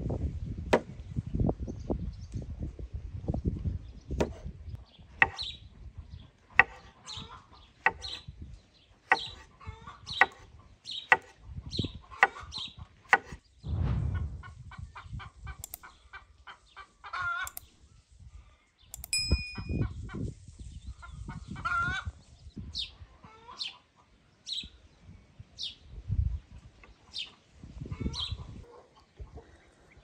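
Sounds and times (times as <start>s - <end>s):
chickens clucking: 9.1s - 11.3s, 12.0s - 12.6s, 21.0s - 22.1s, 23.2s - 24.2s.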